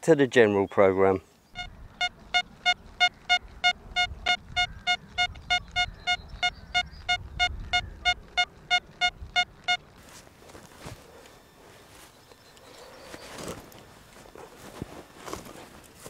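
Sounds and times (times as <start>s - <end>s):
metal detector beeping: 1.6s - 9.9s.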